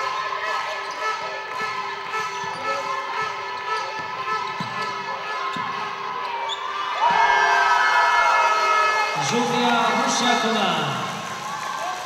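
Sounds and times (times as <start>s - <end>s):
shoes squeaking on floor: 0.0s - 7.2s.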